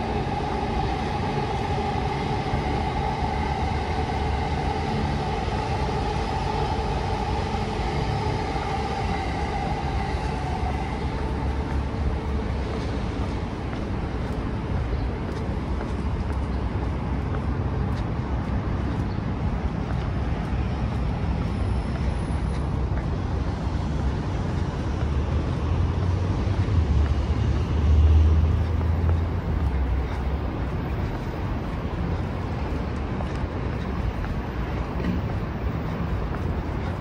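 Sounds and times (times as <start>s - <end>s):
city traffic rumble: 0.0s - 37.0s
vehicle passing: 17.0s - 37.0s.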